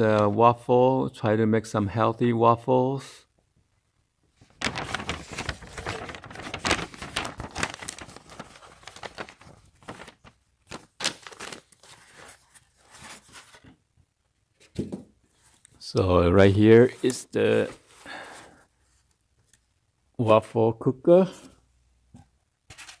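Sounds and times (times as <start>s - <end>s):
paper rustling and crinkling: 4.4s - 13.8s, 16.6s - 19.6s, 22.7s - 23.0s.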